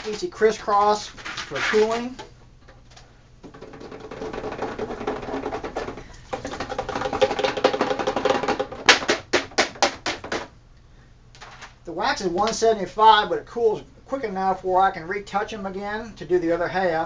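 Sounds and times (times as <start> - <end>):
plastic sheet rattling in bucket: 0.0 - 10.5.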